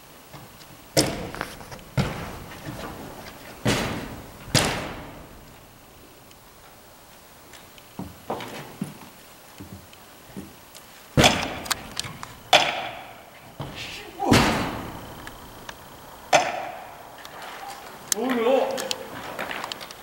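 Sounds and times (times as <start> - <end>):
ice axes knocking on holds: 0.3 - 5.6, 11.2 - 15.5, 16.3 - 17.0.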